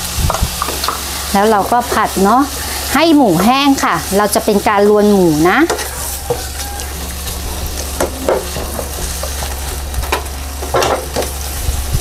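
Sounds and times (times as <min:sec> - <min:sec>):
meat sizzling in a frying pan: 0:00.0 - 0:12.0
spatula scraping a pan: 0:05.4 - 0:09.9.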